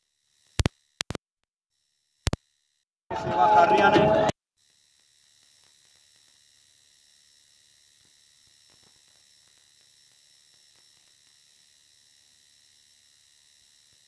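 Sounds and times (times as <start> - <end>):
faint ticks: 0.4 - 1.2, 2.2 - 2.5, 8.0 - 14.0
thin high whine: 2.2 - 14.0.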